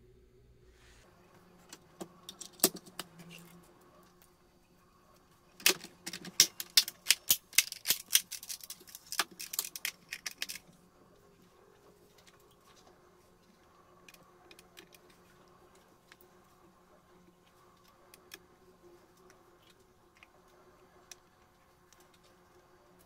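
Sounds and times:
plastic parts clicking: 0:02.2 - 0:03.5, 0:05.6 - 0:10.7.

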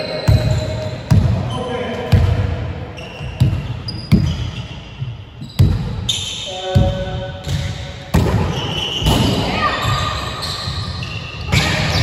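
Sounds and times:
shoes squeaking on floor: 0:02.9 - 0:07.9, 0:08.5 - 0:12.0.

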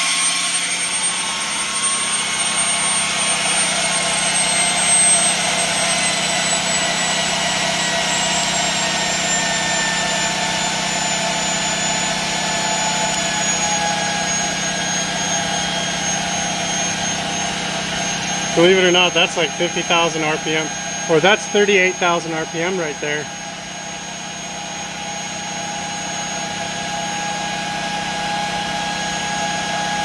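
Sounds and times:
turbine whine: 0:00.0 - 0:30.0.

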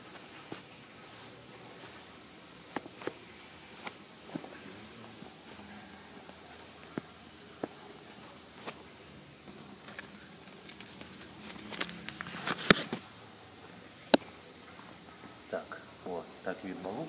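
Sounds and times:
rustling: 0:00.0 - 0:13.2.

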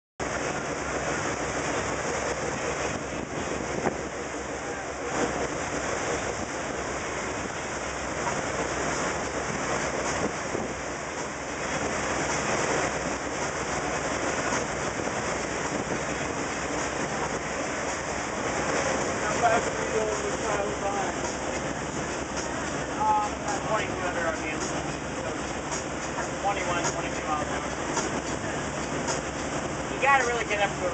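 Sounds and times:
boat wake water rushing: 0:00.2 - 0:30.9
water splashes: 0:00.2 - 0:30.9.

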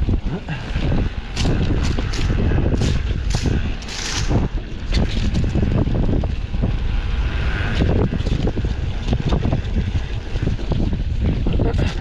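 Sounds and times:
wind buffeting microphone: 0:00.0 - 0:12.0
bike knocks and rattles: 0:00.8 - 0:12.0.

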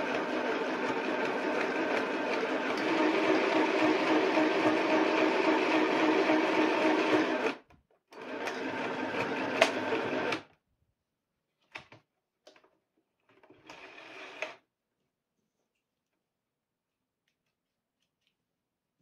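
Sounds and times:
sewing machine stitching: 0:00.0 - 0:10.5, 0:13.4 - 0:14.6.

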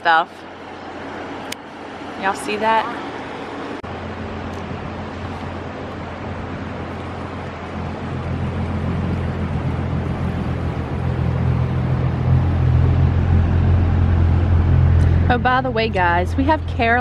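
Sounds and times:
water and wind hissing: 0:00.4 - 0:14.2
motorboat engine running: 0:03.9 - 0:17.0.

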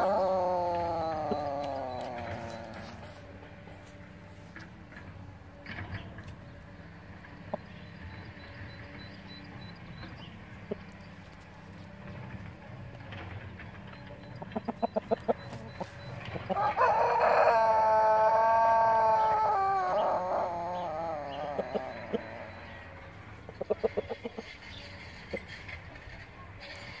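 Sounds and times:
rooster crowing: 0:00.0 - 0:03.3, 0:15.2 - 0:23.0
short clucks: 0:13.9 - 0:16.6.

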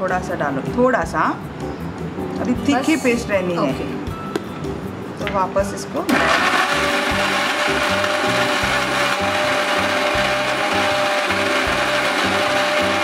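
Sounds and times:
electric mixer grinder running: 0:06.1 - 0:13.0.

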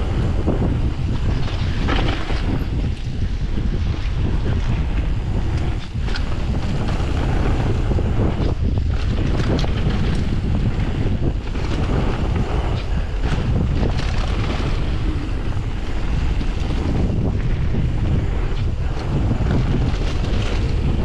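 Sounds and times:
bike clicks and rattles: 0:00.0 - 0:21.0
tyres rumbling on gravel: 0:00.0 - 0:21.0
wind buffeting microphone: 0:00.0 - 0:21.0.

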